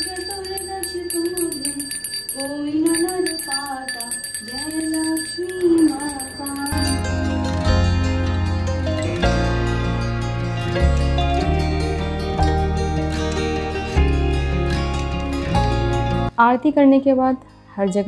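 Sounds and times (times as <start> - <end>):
small bells jingling: 0.0 - 7.1.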